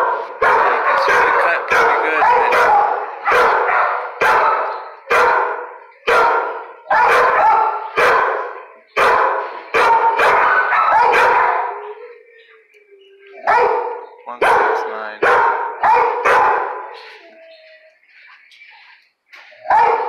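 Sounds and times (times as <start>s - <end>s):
dog barking with echo: 0.0s - 12.0s, 13.4s - 17.1s, 19.6s - 20.0s.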